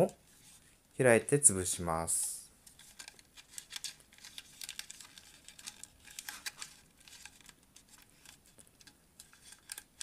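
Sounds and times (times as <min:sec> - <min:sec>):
paper crinkling and crackling: 0:02.7 - 0:10.0.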